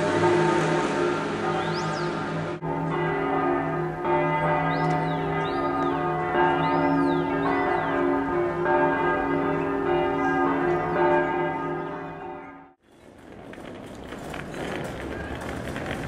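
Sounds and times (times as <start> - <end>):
church bells ringing: 0.0 - 12.8.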